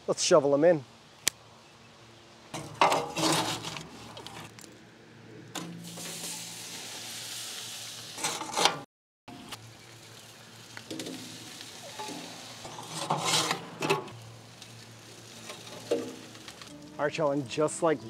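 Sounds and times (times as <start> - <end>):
metal shovel scraping coals: 2.5 - 4.6, 5.5 - 7.4, 8.0 - 8.8, 9.4 - 18.0
steady hiss: 5.6 - 8.2, 9.6 - 18.0.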